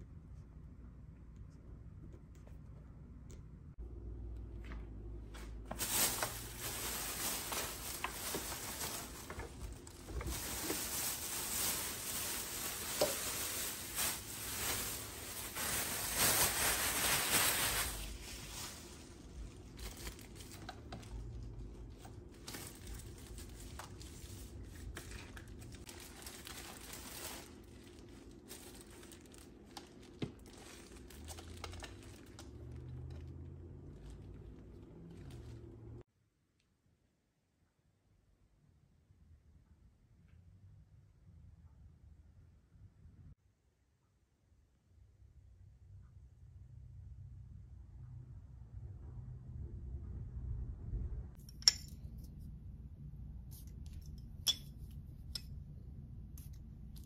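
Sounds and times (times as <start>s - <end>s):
plastic packaging crinkling and tearing: 5.7s - 35.6s.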